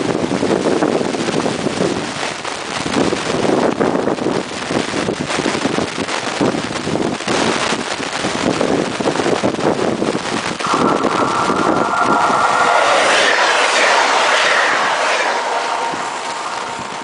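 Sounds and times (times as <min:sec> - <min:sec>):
wind buffeting microphone: 0:08.3 - 0:17.0
train rumbling: 0:10.6 - 0:17.0.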